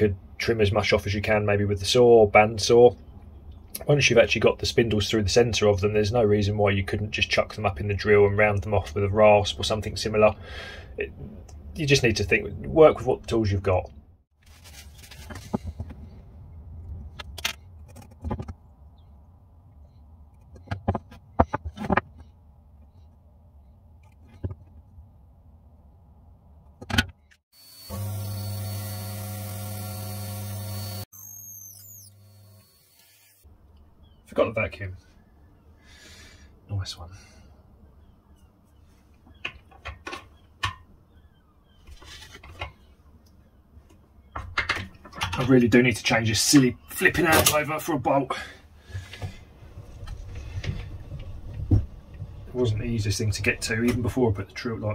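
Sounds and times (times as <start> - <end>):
tools clicking and knocking on wood: 17.1 - 18.6, 20.3 - 22.9, 39.2 - 40.9, 43.9 - 45.5.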